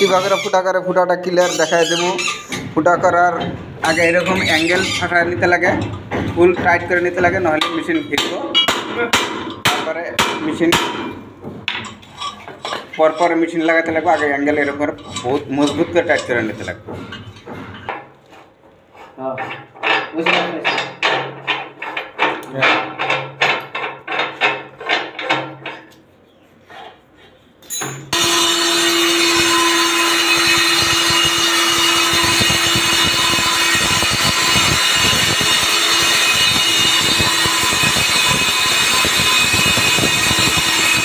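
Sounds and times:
knocking: 1.5 - 18.2, 19.3 - 25.9
core drill boring into concrete: 3.8 - 5.8, 28.1 - 41.0.

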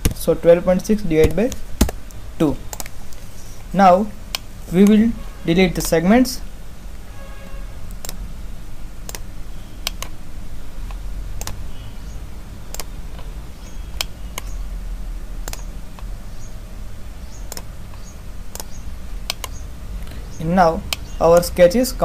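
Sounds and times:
computer mouse clicking: 1.2 - 3.2, 7.9 - 8.2, 9.0 - 10.2, 10.8 - 11.6, 12.7 - 13.3, 15.4 - 16.1, 17.4 - 19.6.

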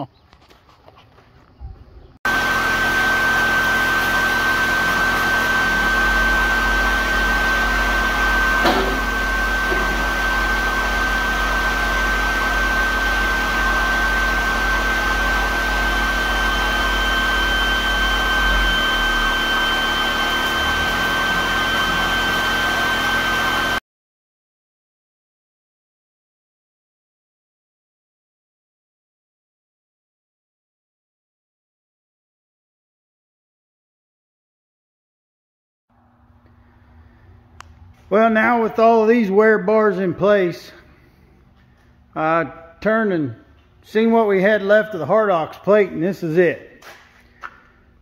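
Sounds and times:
low hum: 1.8 - 23.8
high whine: 2.3 - 23.8
higher whine: 2.3 - 23.8
ventilation blower rushing: 2.3 - 23.8.

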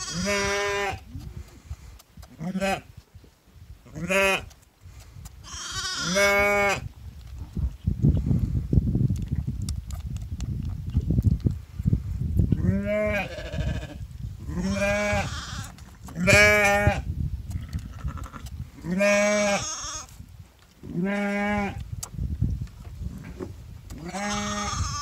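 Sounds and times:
sheep bleating: 0.0 - 1.0, 5.5 - 6.8, 24.0 - 25.0.

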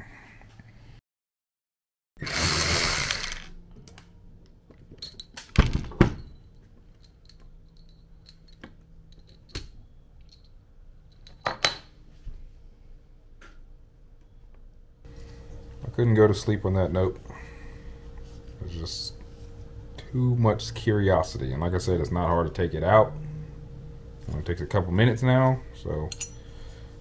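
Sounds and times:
metal parts clinking on wood: 2.3 - 3.6, 5.0 - 5.5, 6.2 - 11.9.

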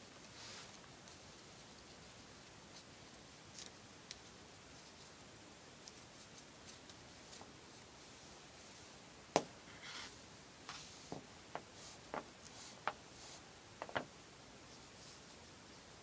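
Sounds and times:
cord rustling between fingers: 0.0 - 8.9.

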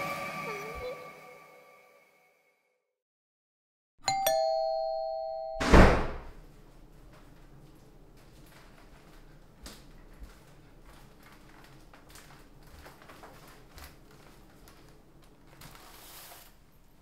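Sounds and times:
faint footsteps: 6.4 - 15.8
wicker basket rustling: 10.1 - 16.9.

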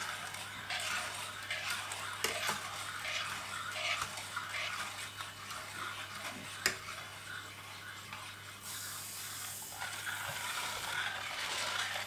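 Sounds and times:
metal spoon stirring in pot: 0.0 - 8.5.

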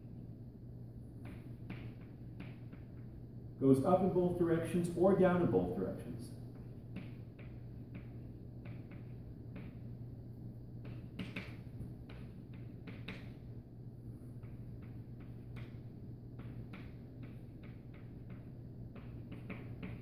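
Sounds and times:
steady low hum: 0.0 - 20.0
chalk tapping and scratching: 1.2 - 3.0, 16.4 - 20.0.

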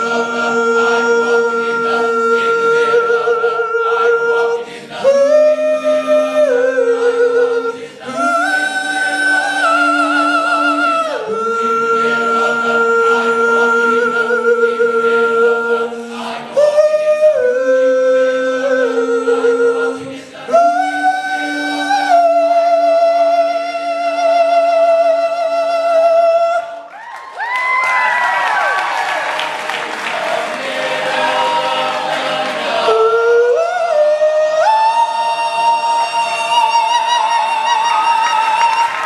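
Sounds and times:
male choir singing a cappella: 0.0 - 26.9, 29.5 - 39.0
audience cheering: 26.9 - 33.0, 37.0 - 39.0.

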